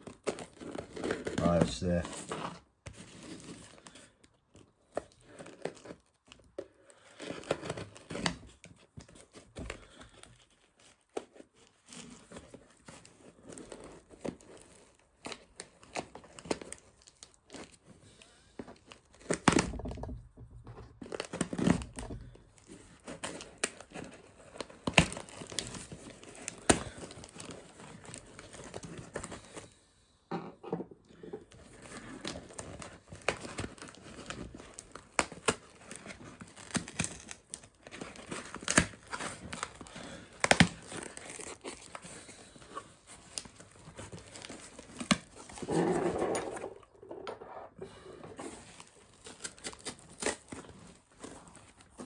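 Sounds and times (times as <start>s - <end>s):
packing tape ripping off cardboard: 0.0s - 20.2s, 20.9s - 29.7s, 31.5s - 52.0s.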